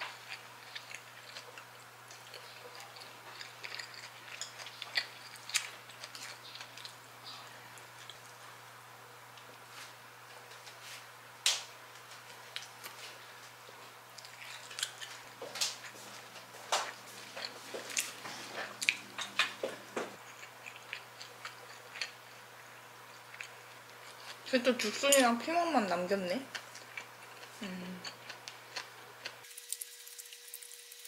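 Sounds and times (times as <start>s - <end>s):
chewing and biting food: 0.0s - 7.0s, 14.1s - 25.0s, 26.5s - 31.0s
chopsticks clicking on dishes: 18.8s - 19.9s.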